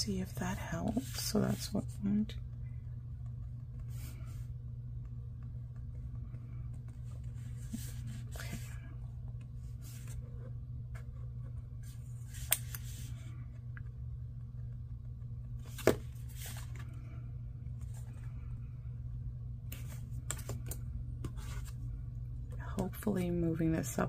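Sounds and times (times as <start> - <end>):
low hum: 0.0 - 24.0
paper rustles and scrapes: 6.9 - 8.8, 15.6 - 16.9.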